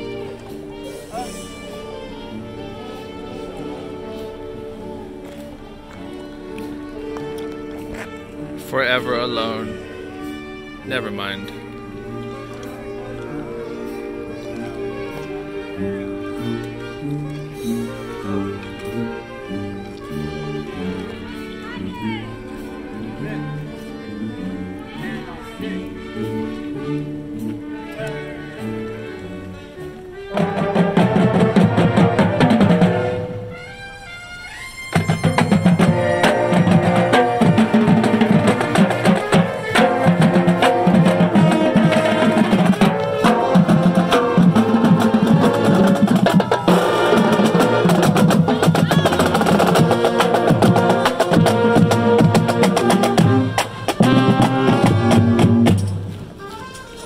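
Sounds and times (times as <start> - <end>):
marching drumline playing: 30.3 - 33.9, 34.9 - 56.5.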